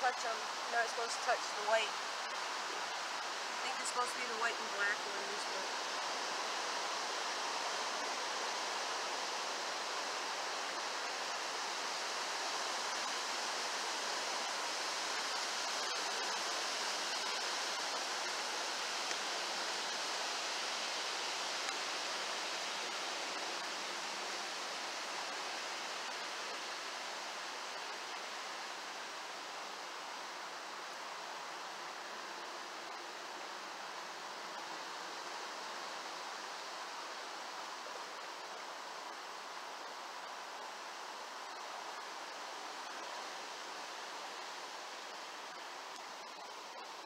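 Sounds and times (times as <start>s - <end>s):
stream running over rocks: 0.0s - 47.0s.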